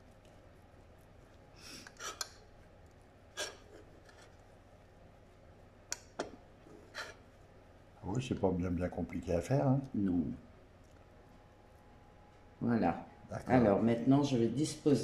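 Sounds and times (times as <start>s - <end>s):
fish rubbed in breadcrumbs: 0.0s - 4.6s.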